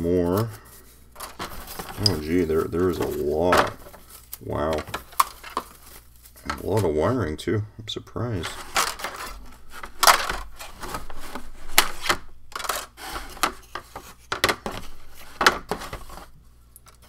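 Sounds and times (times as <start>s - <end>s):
rustling: 0.0s - 7.3s, 8.4s - 17.0s.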